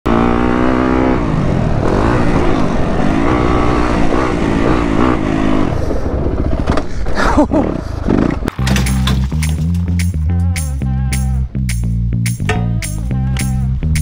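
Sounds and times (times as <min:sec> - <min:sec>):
dirt bike engine revving: 0:00.1 - 0:06.0.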